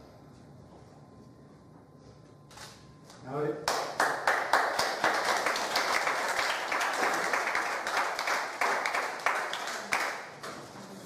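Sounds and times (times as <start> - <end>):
audience applauding: 3.7 - 10.4.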